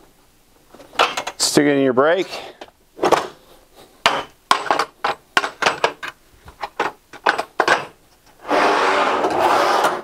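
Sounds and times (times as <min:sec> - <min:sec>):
metal clicks and knocks: 0:00.8 - 0:01.5, 0:04.0 - 0:08.4.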